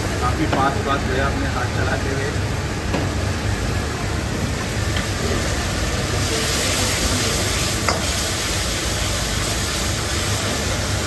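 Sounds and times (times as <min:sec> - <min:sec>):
gas burner roar: 0:00.0 - 0:11.0
sauce sizzling in a wok: 0:02.7 - 0:11.0.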